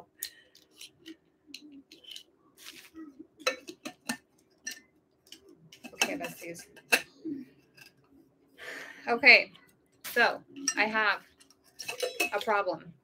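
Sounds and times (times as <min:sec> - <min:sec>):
steel tumbler and lid clinking: 0:11.8 - 0:12.6.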